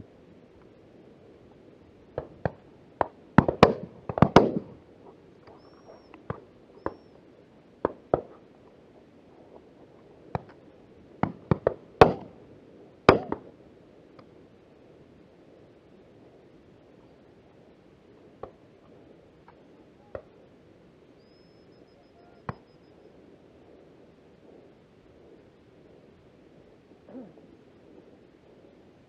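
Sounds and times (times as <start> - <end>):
shotgun shots with echo: 3.4 - 4.7, 11.2 - 12.3, 13.1 - 13.4.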